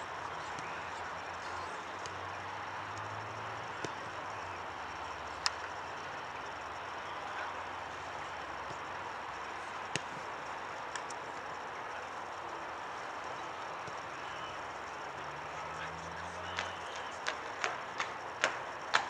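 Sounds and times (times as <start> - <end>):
outdoor background noise: 0.0 - 19.0
faint clicks: 10.9 - 11.5.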